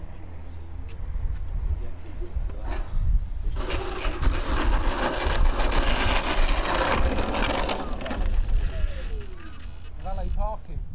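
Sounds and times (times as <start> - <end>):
model plane motor whirring: 3.6 - 10.6.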